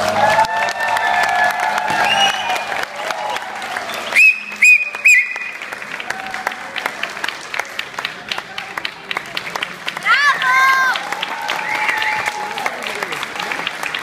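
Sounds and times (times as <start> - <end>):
music: 0.0 - 5.6
audience applauding: 0.0 - 14.0
loud high whistles: 2.0 - 2.7, 3.9 - 5.6.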